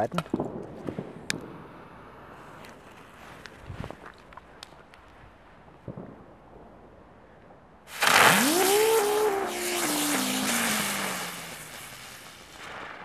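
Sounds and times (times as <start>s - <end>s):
firework whine: 7.9s - 13.0s
ground spinner firework fizzing: 7.9s - 13.0s.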